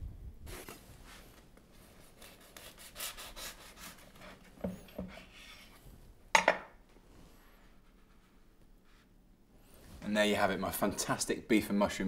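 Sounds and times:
knife sawing through bread: 0:02.1 - 0:04.4.

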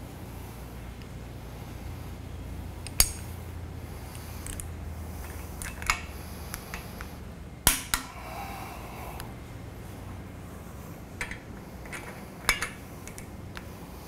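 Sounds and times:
torque wrench clicking: 0:02.8 - 0:03.4.

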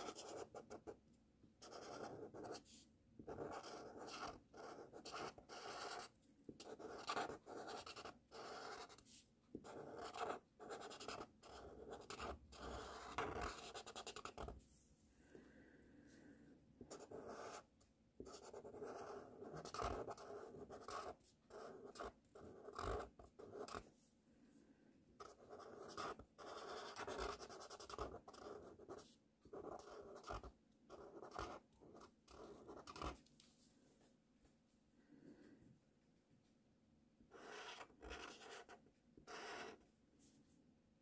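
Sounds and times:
marker scratching on paper: 0:00.0 - 0:01.0, 0:01.6 - 0:14.6, 0:16.8 - 0:23.9, 0:25.2 - 0:33.2, 0:37.3 - 0:39.8.

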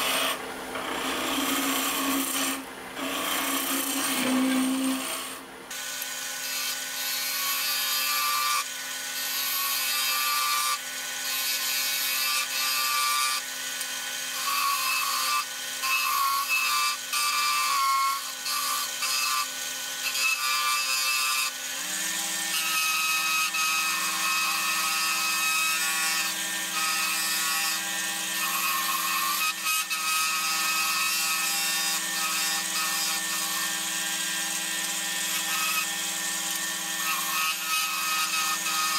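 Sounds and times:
chisel scraping spinning wood: 0:00.0 - 0:05.5
wood lathe motor hum: 0:00.0 - 0:06.8, 0:23.6 - 0:38.9.

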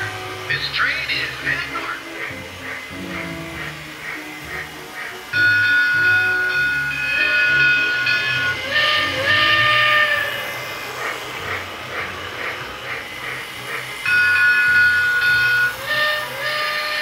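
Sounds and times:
steam chuffing: 0:00.0 - 0:17.0
steam whistle blast: 0:02.9 - 0:12.6, 0:14.0 - 0:17.0.

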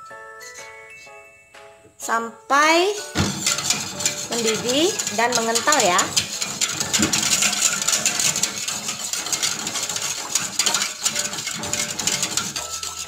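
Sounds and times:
utensil scraping metal pot: 0:03.1 - 0:13.0.

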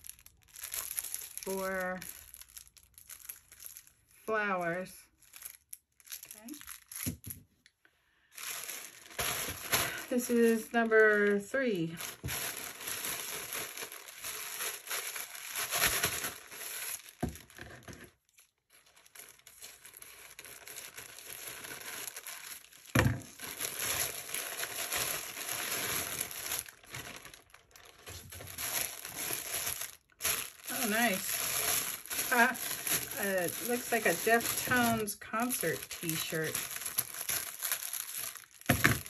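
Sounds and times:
plastic-wrapped shirt rustling: 0:00.0 - 0:07.4, 0:08.2 - 0:39.0
plastic bag crinkling: 0:00.0 - 0:07.6, 0:08.2 - 0:39.0.

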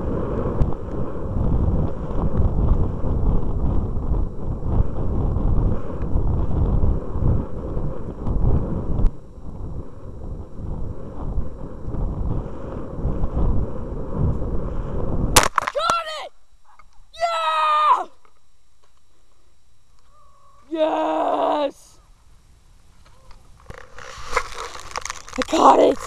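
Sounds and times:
wind rushing over microphone: 0:00.0 - 0:15.6, 0:23.4 - 0:26.0
rocket knocking on grass: 0:15.4 - 0:15.9.

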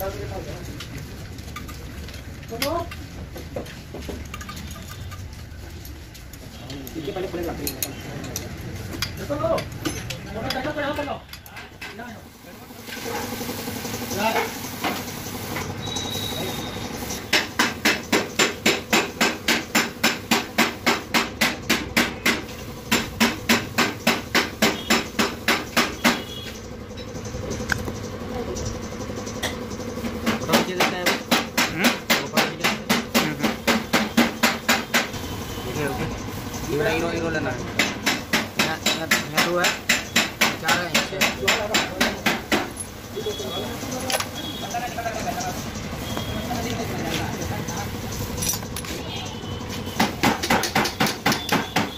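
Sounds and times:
hammer striking rapidly: 0:17.2 - 0:26.3, 0:30.2 - 0:35.2, 0:37.6 - 0:42.8, 0:50.0 - 0:51.9.

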